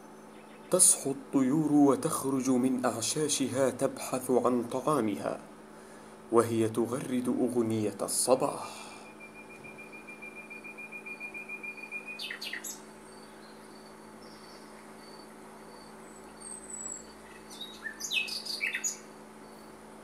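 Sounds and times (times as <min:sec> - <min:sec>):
birds singing: 0:00.0 - 0:02.3, 0:08.4 - 0:19.7.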